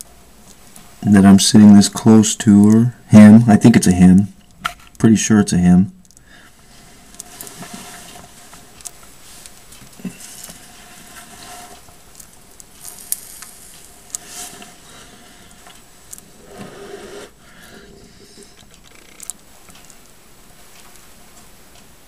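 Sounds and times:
snake rustling on carpet: 0:06.3 - 0:20.0
small clicks: 0:18.5 - 0:21.9.

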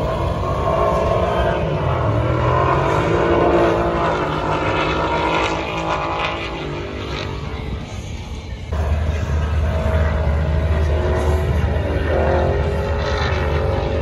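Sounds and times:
racing car engines accelerating: 0:00.0 - 0:14.0.

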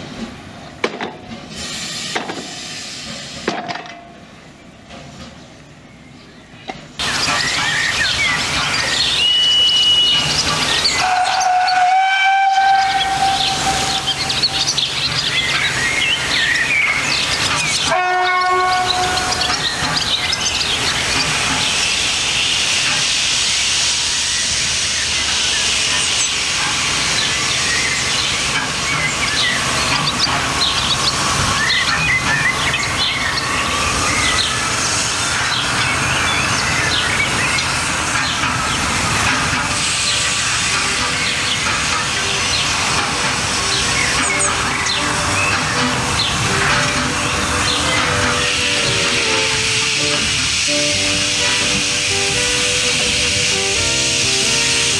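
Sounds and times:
steam train running: 0:00.0 - 0:54.9
steam locomotive whistle: 0:08.9 - 0:14.9, 0:16.2 - 0:20.1, 0:43.7 - 0:54.9.

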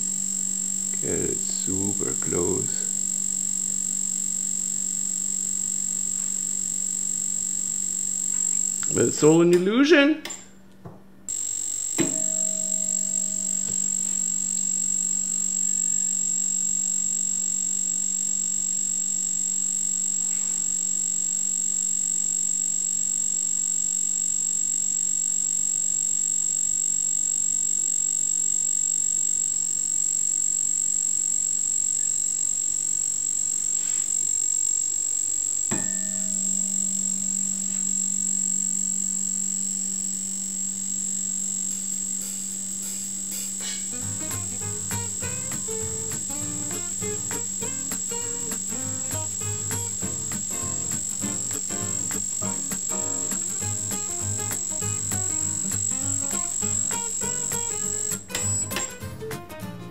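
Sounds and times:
high-pitched whine: 0:00.0 - 0:10.4, 0:11.3 - 0:59.8
stroboscope electrical buzz: 0:00.0 - 0:10.6, 0:11.2 - 0:59.9
click: 0:08.3 - 0:10.8.

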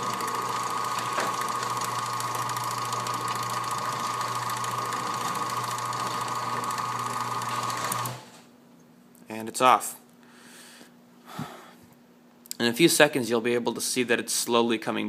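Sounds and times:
garage door opener click: 0:00.0 - 0:08.4
garage door motor humming: 0:00.0 - 0:08.5.

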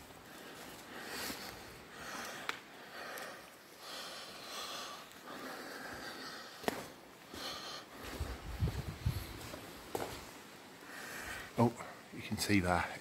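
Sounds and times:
person breathing close to microphone: 0:00.2 - 0:09.6.

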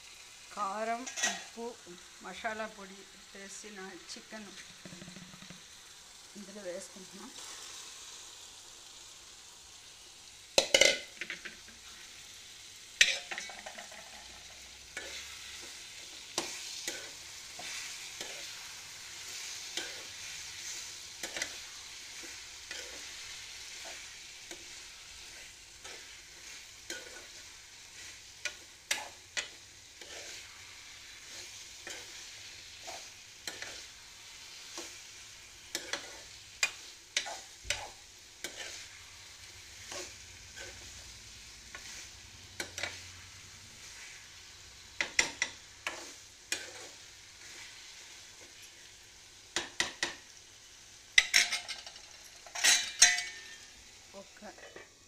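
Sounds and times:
chicken sizzling in a pan: 0:00.0 - 0:55.0
spoon scraping and knocking pan: 0:01.0 - 0:01.6, 0:04.4 - 0:05.7, 0:10.6 - 0:11.9, 0:13.0 - 0:41.1, 0:41.7 - 0:43.2, 0:45.0 - 0:48.9, 0:49.5 - 0:50.4, 0:51.2 - 0:53.8, 0:54.5 - 0:55.0.

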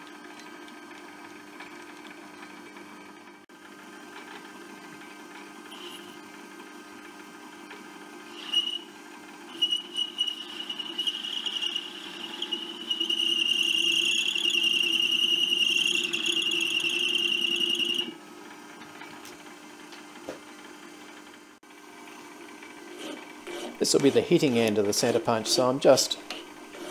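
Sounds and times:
lathe running hum: 0:03.2 - 0:18.2, 0:21.8 - 0:26.9
lathe cutting metal squeal: 0:08.3 - 0:08.9, 0:09.5 - 0:18.1.

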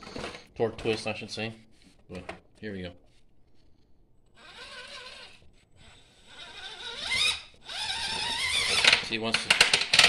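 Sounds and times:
toy car motor whining: 0:04.4 - 0:09.0.

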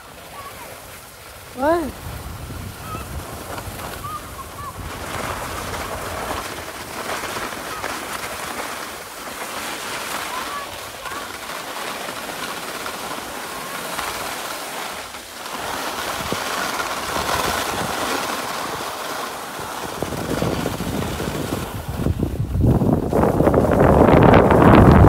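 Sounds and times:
skis sliding over snow: 0:00.0 - 0:25.0
wind noise on microphone: 0:01.5 - 0:08.8, 0:15.6 - 0:25.0.

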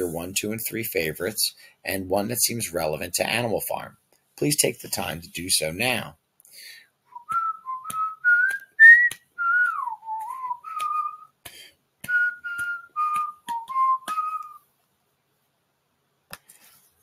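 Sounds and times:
person whistling a tune: 0:07.1 - 0:11.4, 0:12.0 - 0:14.6.

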